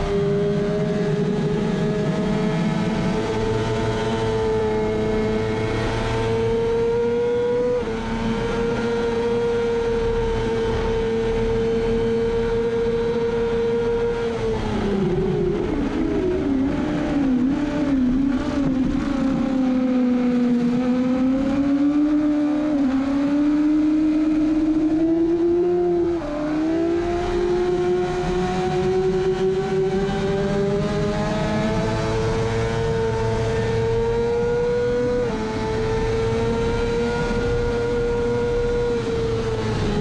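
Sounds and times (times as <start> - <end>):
motorcycle engine revving: 0.0 - 40.0.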